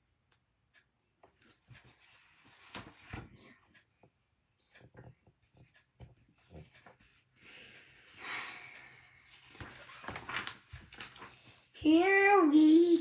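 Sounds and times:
book pages rustling: 1.4 - 3.6, 9.3 - 11.8.

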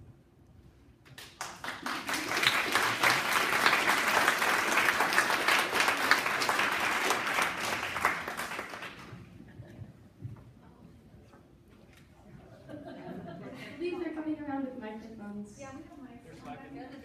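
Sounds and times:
audience clapping: 1.0 - 9.4.

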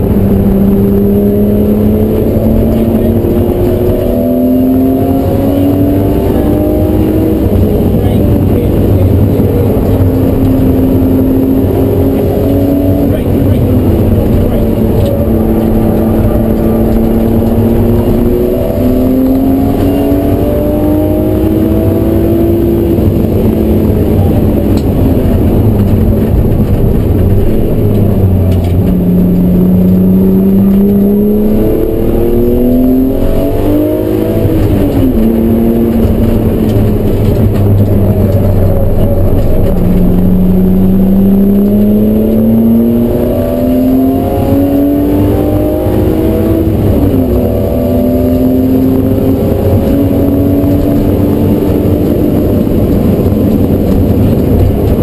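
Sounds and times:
car engine accelerating hard: 0.0 - 55.0.

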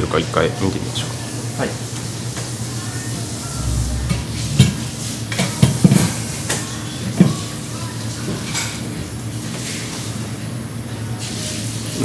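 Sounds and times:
dull low thud: 3.4 - 5.3.

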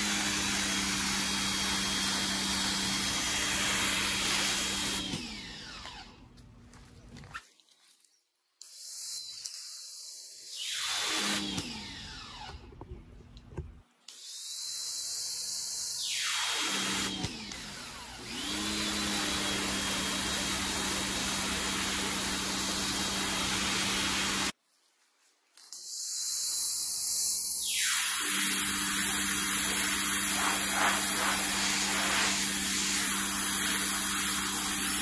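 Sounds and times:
pressure washer motor whine: 0.0 - 6.2, 16.6 - 24.5, 27.7 - 35.0
water jet hissing on stone: 28.8 - 35.0.

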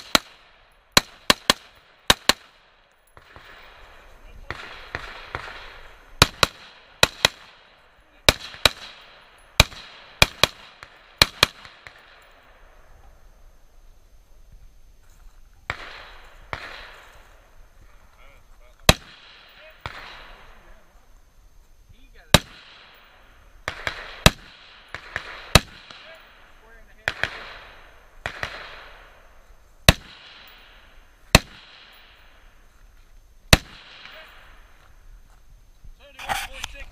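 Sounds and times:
gunshot echo: 3.2 - 12.3, 15.7 - 17.2, 18.8 - 20.8, 22.3 - 32.3, 33.5 - 34.7
gunshots with echo: 4.4 - 12.1.

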